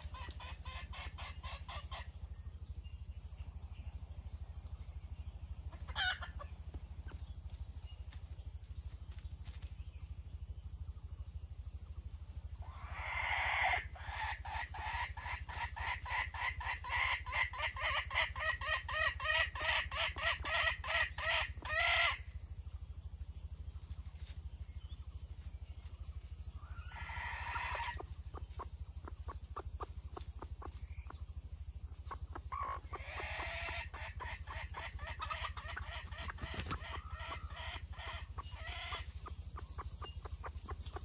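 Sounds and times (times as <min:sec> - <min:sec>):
junglefowl cackling: 0:00.0 - 0:02.2, 0:05.7 - 0:06.6, 0:12.6 - 0:22.3, 0:26.6 - 0:31.2, 0:32.0 - 0:41.0.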